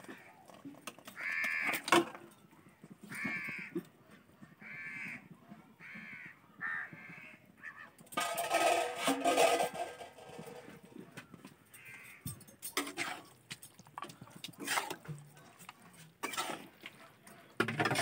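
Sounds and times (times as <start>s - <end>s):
crow cawing: 1.1s - 1.8s, 3.1s - 3.8s, 4.6s - 5.2s, 5.8s - 8.0s, 11.7s - 12.3s.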